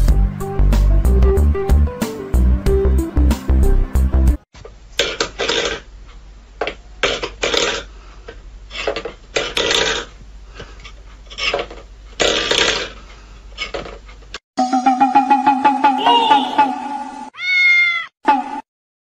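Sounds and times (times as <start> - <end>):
metal bowl scraping wooden floor: 10.8 - 13.0.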